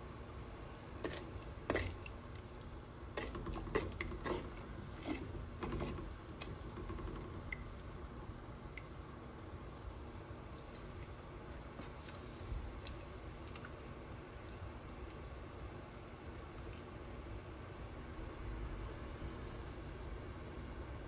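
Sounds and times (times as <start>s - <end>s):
spoon stirring thick syrup: 1.0s - 7.9s.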